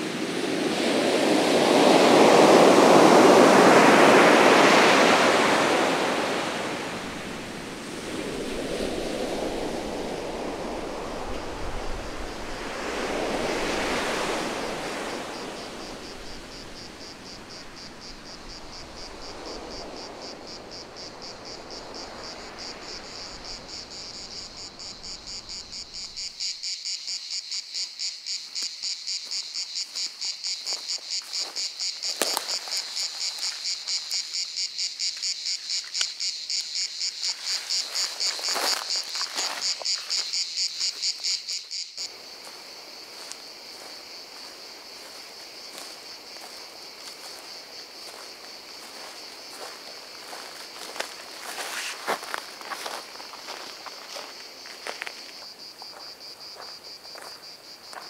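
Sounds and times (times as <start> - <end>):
surf washing in: 0.0 - 26.3
insects chirping: 0.0 - 58.0.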